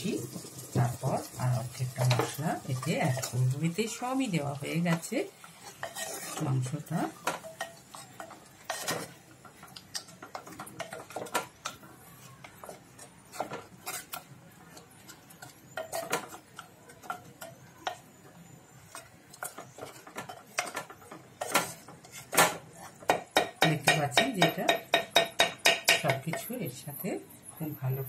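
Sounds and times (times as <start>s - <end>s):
wooden spatula scraping clay pot: 4.8s - 9.2s, 18.8s - 23.1s.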